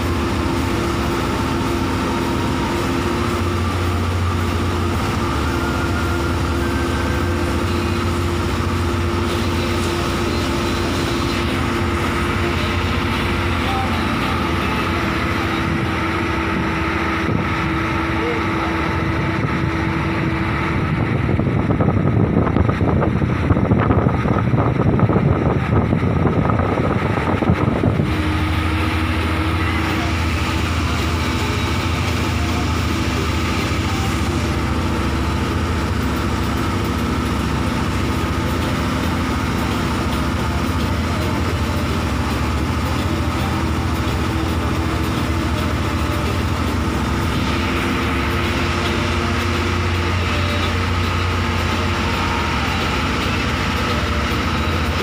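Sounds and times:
bus engine and road drone: 0.0 - 55.0
loud rushing noise: 0.0 - 55.0.

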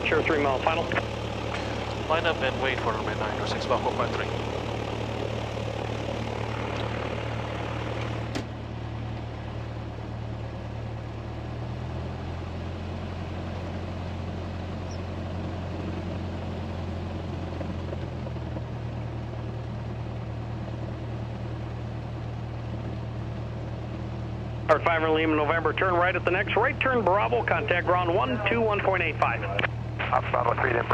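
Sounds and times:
plane engine idling: 0.0 - 30.9.

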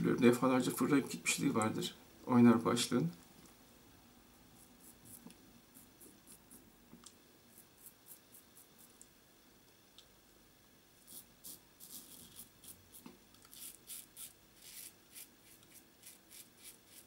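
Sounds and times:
razor scraping beard stubble: 4.6 - 6.6, 7.5 - 8.9, 11.1 - 17.0.

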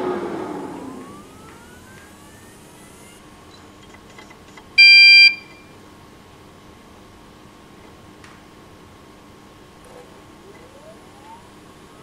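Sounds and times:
rush of air: 0.0 - 1.4
hard drives spinning up: 0.0 - 5.6, 9.5 - 12.0
faint hum of spinning drives: 0.0 - 12.0
loud electronic beep: 4.8 - 5.7.

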